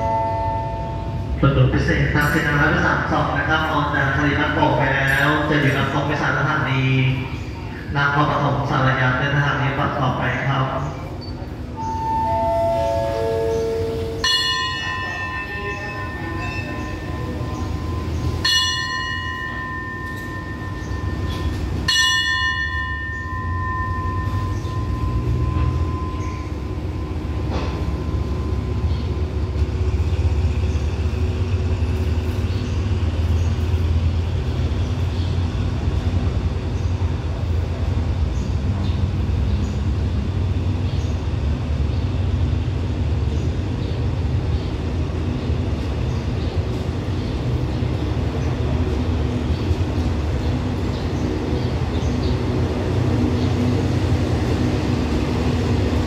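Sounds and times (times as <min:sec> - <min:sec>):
train cars rumbling past: 0:00.0 - 0:56.0
brass bell ringing: 0:11.9 - 0:27.1.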